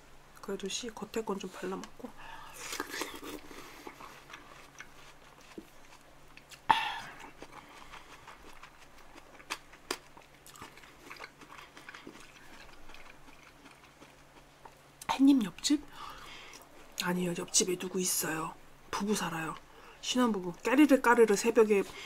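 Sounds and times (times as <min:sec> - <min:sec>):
chewing watermelon: 0:01.8 - 0:14.8.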